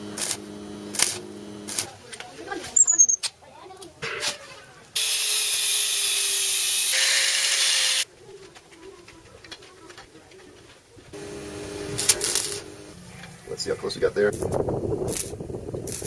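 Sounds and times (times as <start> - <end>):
steady machine noise: 0.0 - 2.0, 11.2 - 16.0
angle grinder grinding steel: 5.0 - 8.1, 11.2 - 13.6.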